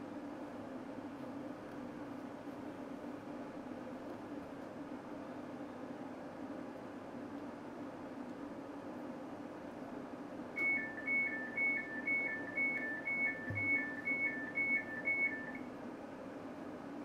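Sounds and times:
two-tone door warning beeps: 0:10.6 - 0:15.7.

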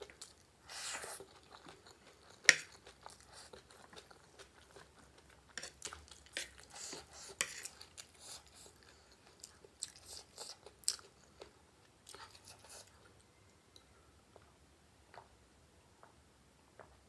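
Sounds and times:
close chewing crunches: 0:00.0 - 0:13.1.

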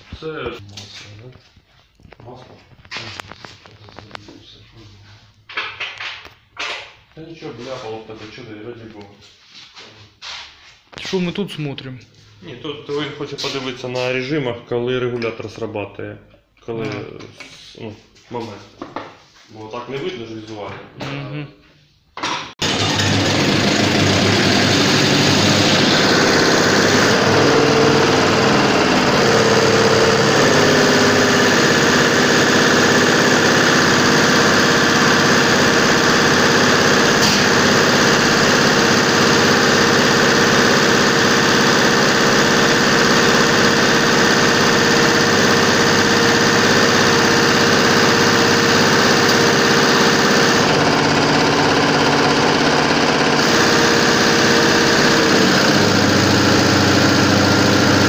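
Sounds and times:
injection pump test bench hum: 0:22.6 - 0:58.0.

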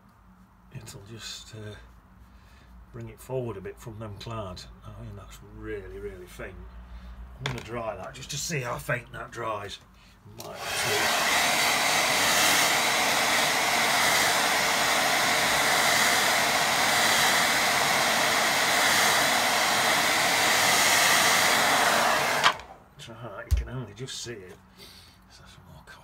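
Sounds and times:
electric dryer blowing air: 0:10.4 - 0:22.8.

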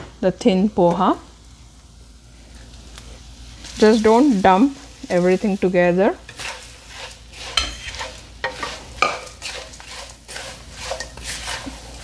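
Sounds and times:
oil sizzling: 0:00.0 - 0:12.0
spatula scraping pan: 0:03.6 - 0:12.0.

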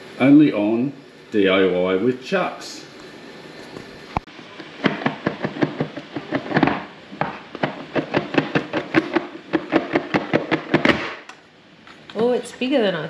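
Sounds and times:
cardboard boxes tapping and knocking: 0:04.4 - 0:11.3.

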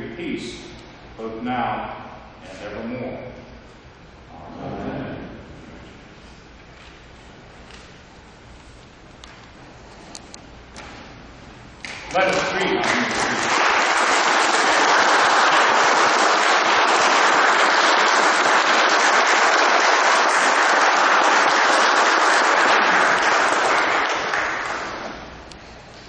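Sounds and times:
crowd applauding: 0:12.1 - 0:25.4.

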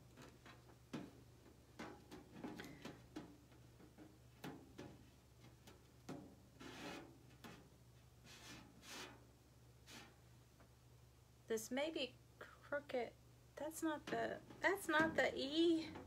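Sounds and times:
low steady hum: 0:09.3 - 0:16.0.

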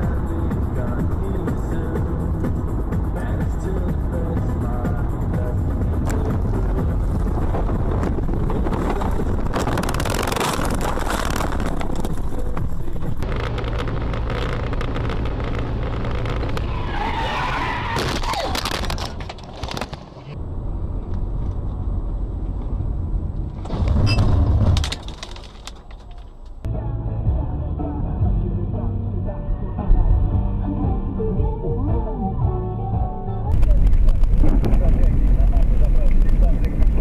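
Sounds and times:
road and engine rumble: 0:00.0 - 0:37.0
tyre squeal: 0:16.1 - 0:19.0, 0:24.0 - 0:24.4.

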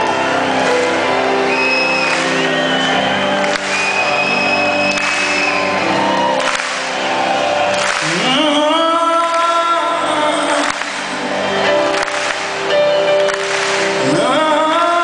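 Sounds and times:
man singing: 0:08.0 - 0:11.4, 0:14.0 - 0:15.0.

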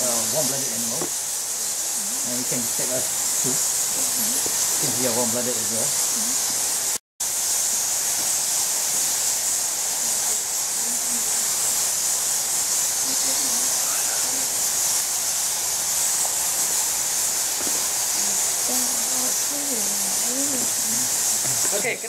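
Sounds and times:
distant voices murmuring: 0:00.0 - 0:06.5, 0:10.0 - 0:11.8, 0:13.0 - 0:14.8, 0:17.8 - 0:22.0
high-pitched hiss: 0:00.0 - 0:22.0.

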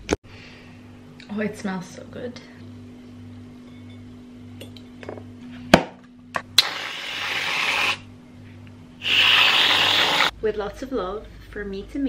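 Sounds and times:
aerosol can hissing: 0:06.6 - 0:08.0, 0:09.0 - 0:10.3.

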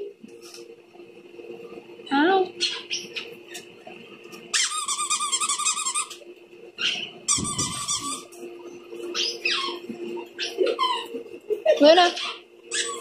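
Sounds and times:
dog whining: 0:09.1 - 0:11.2, 0:12.2 - 0:13.0.

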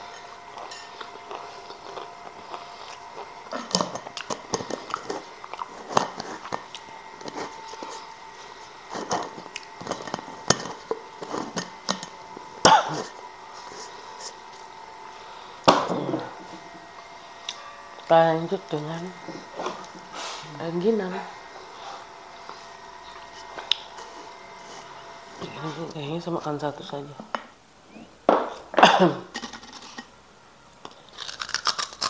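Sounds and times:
chips crackling in glass jar: 0:29.3 - 0:30.1, 0:30.9 - 0:32.0.

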